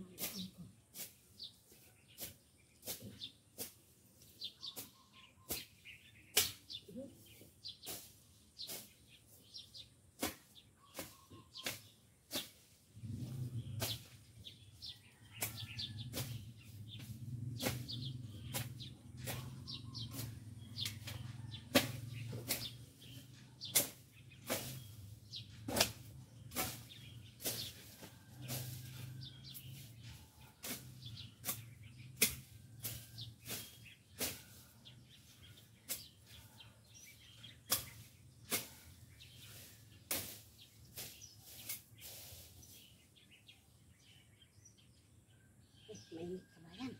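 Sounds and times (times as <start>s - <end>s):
blade swishing through grass: 0.1s - 43.2s.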